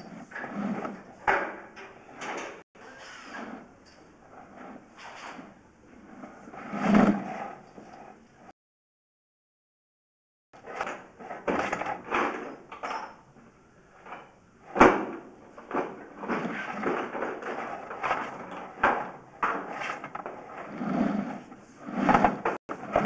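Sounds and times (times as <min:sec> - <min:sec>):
camera scraping in pipe: 0:00.0 - 0:01.3, 0:02.0 - 0:08.5, 0:16.0 - 0:18.8, 0:19.4 - 0:23.0.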